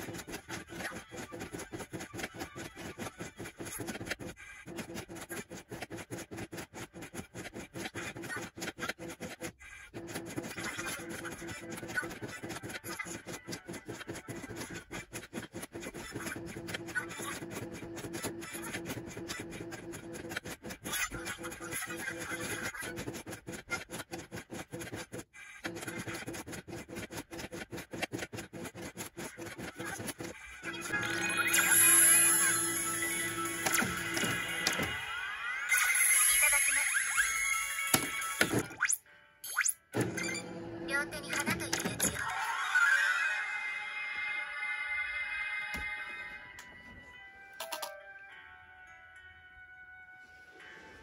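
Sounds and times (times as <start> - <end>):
faint background music: 29.1 - 51.0
slot machine rhythmic pulsing: 29.2 - 38.8.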